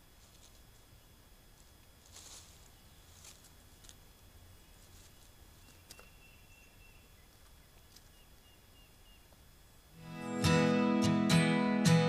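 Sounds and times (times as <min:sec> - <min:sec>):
high chirping notes: 0:10.0 - 0:12.0.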